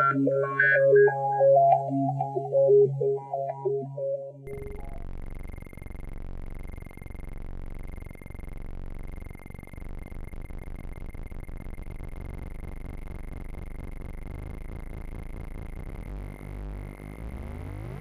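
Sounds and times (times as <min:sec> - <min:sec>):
buzzing synthesizer drone: 0:00.0 - 0:10.6, 0:11.2 - 0:18.0.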